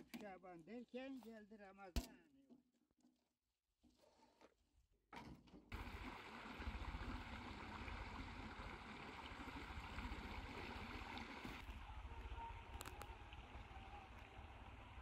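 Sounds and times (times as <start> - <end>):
stream flowing: 5.7 - 15.0.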